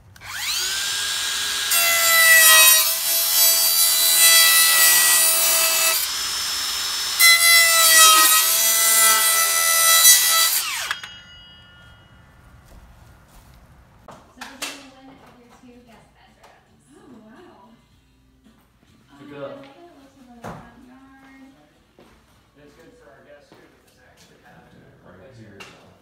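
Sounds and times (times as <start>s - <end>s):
jigsaw cutting board: 0.2s - 11.0s.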